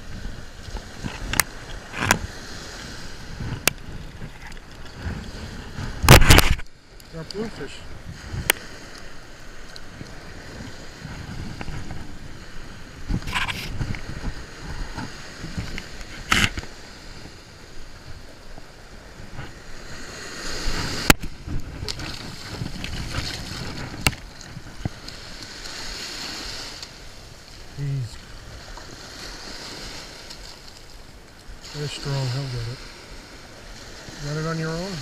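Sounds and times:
ocean surf washing up beach: 0.0s - 35.0s
wind rumble on microphone: 0.0s - 35.0s.

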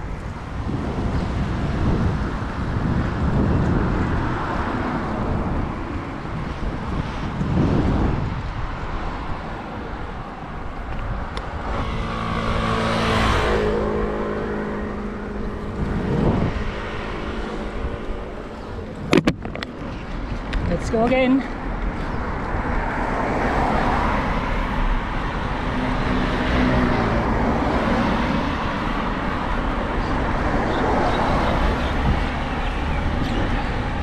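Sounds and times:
wind buffeting microphone: 0.0s - 34.0s
motor vehicle engine passing: 11.1s - 20.4s.

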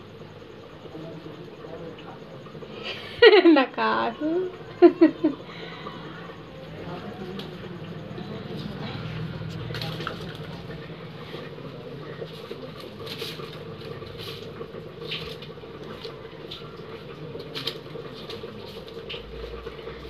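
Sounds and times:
steady low hum: 0.0s - 20.0s
onion skins rustling on concrete: 8.5s - 19.6s.

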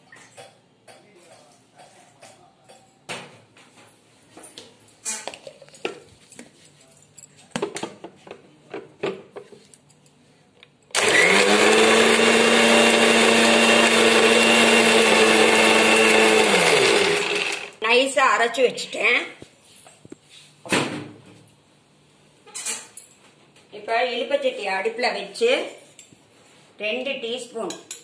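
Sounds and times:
mixer grinder running: 10.9s - 17.8s.

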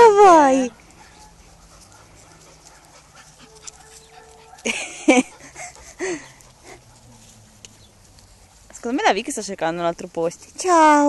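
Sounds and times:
dog yelping: 0.2s - 7.2s.

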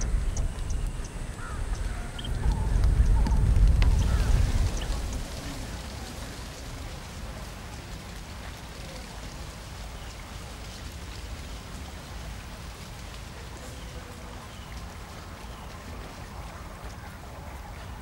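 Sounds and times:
low rumble: 0.0s - 7.6s
faint crackles: 0.0s - 18.0s
outdoor background hiss: 0.0s - 18.0s.

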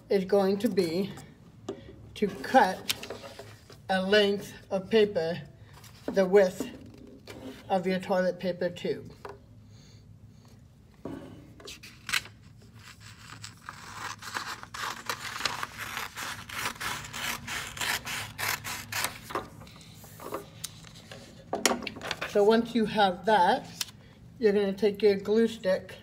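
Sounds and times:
scissors snipping paper: 12.8s - 19.3s.

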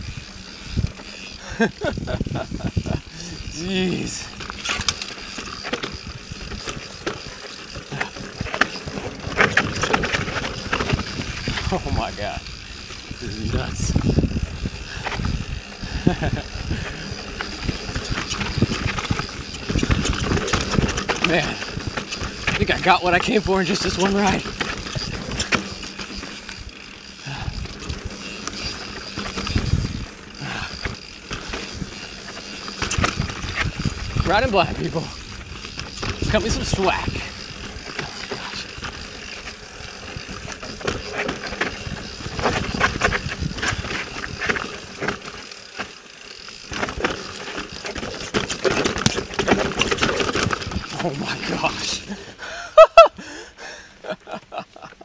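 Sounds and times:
mountain bike rattling on rough trail: 0.0s - 55.0s
wind on microphone: 1.5s - 3.6s, 9.4s - 17.0s, 29.4s - 30.7s, 41.8s - 44.1s.

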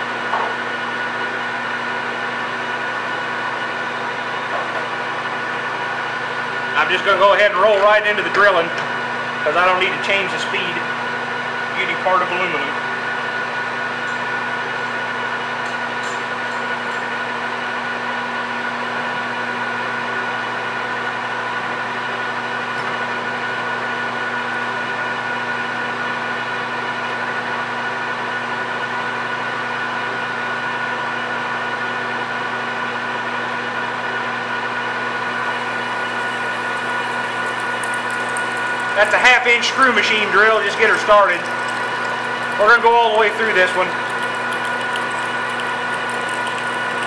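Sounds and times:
lathe humming: 34.7s - 47.0s.

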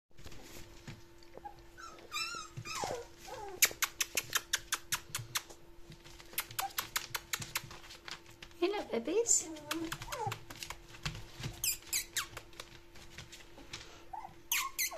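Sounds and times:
puppies scrabbling on newspaper: 0.2s - 14.9s
puppies whimpering: 1.3s - 3.8s, 10.0s - 10.5s, 14.1s - 14.9s.

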